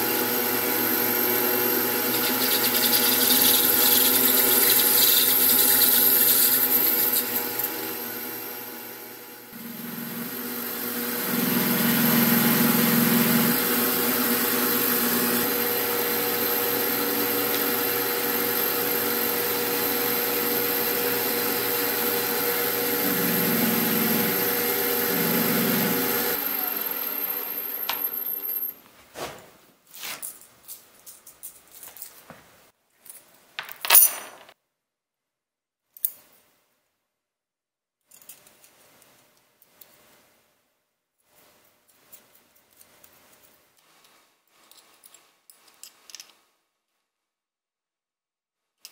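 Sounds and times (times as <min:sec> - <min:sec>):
lathe motor whine: 0:00.0 - 0:28.7
metal grinding on abrasive disc: 0:02.1 - 0:07.8.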